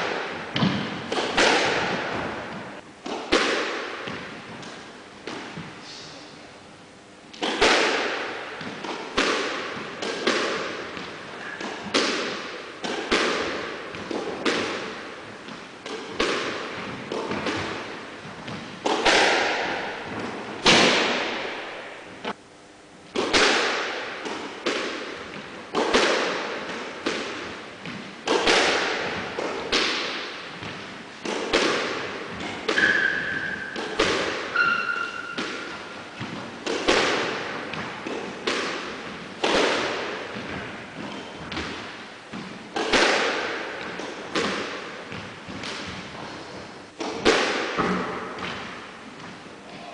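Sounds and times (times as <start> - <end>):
squash ball thwacks: 0.0 - 5.8, 7.3 - 22.4, 23.1 - 49.4
short high squeaks: 34.5 - 35.4.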